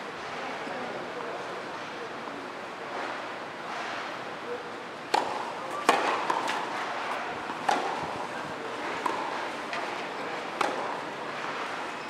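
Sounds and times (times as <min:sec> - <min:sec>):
tennis ball struck by rackets: 0:05.1 - 0:08.2, 0:09.0 - 0:11.7.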